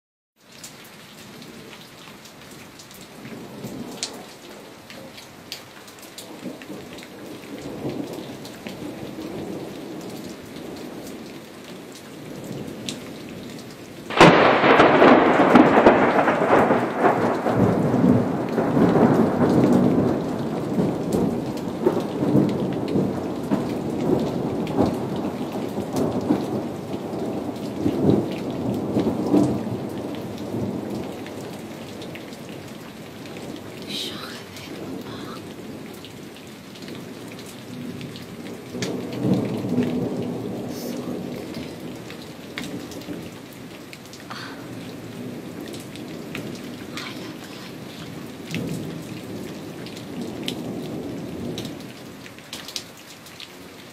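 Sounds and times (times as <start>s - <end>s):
steady rain: 0.4s - 53.9s
rumble of thunder: 6.3s - 11.2s, 14.1s - 52.1s
loud crack of thunder: 14.1s - 32.1s, 38.7s - 43.4s.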